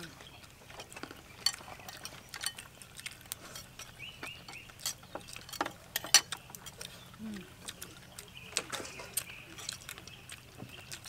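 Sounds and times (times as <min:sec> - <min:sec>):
chewing: 0:00.0 - 0:11.0
chopsticks clicking on plates: 0:04.5 - 0:07.0.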